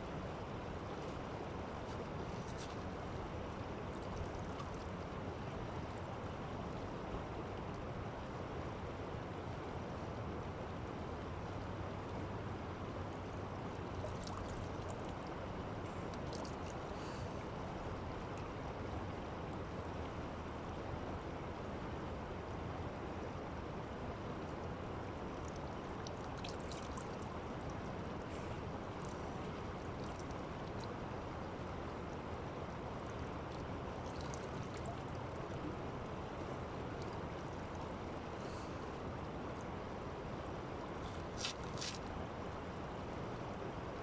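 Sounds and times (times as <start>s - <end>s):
river water rushing: 0.0s - 44.0s
small splashes of scooped water: 13.8s - 15.3s, 25.4s - 27.3s, 33.5s - 35.6s, 41.0s - 42.1s.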